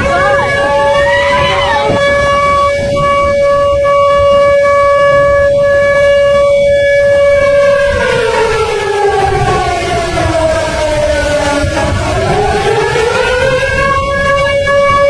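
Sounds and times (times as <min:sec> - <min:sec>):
low rushing noise: 0:00.0 - 0:06.0
warning siren wailing: 0:00.0 - 0:15.0.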